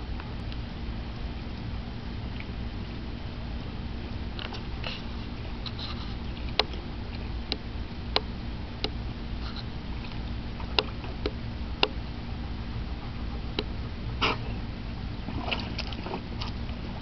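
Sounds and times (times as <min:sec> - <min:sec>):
steady low rumble: 0:00.0 - 0:17.0
dog lapping water: 0:12.3 - 0:17.0.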